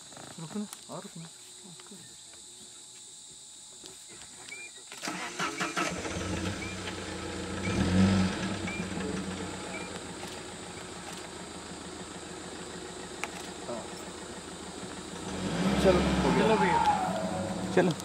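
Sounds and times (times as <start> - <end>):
crickets or cicadas droning: 0.0 - 18.0
vehicle engine starting and idling: 5.0 - 18.0.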